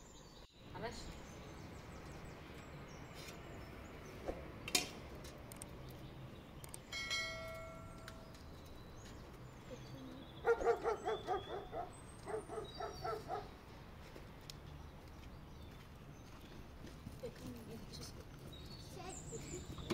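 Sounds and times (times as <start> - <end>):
small birds chirping faintly: 0.0 - 19.9
dog yapping: 10.4 - 13.5.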